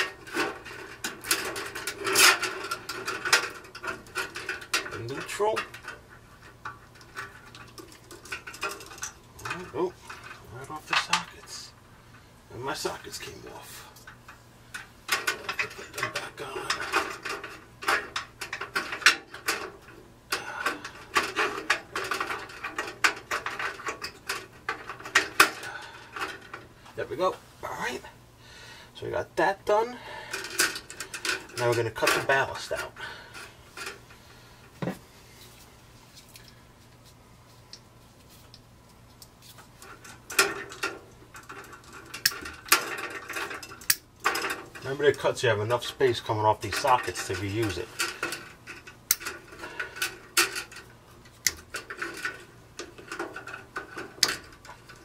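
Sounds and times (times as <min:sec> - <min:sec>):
metal light fixture clicking and rattling: 0:00.0 - 0:11.5, 0:14.0 - 0:26.7, 0:30.3 - 0:34.2, 0:39.2 - 0:44.9, 0:46.6 - 0:55.0.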